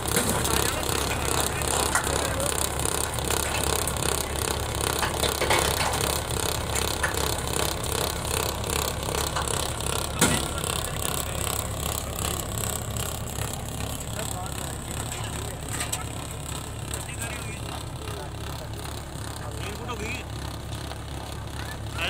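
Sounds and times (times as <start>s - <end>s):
tractor engine under load: 0.0s - 22.0s
trencher rattling and clattering: 0.0s - 22.0s.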